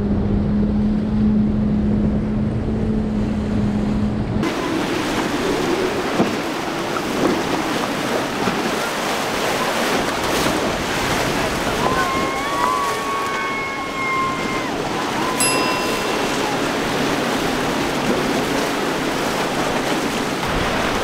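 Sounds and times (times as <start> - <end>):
motorboat passing at speed: 0.0 - 21.0
surf rushing: 4.4 - 21.0
voices calling out: 11.6 - 17.4
steady high tone: 15.4 - 17.9.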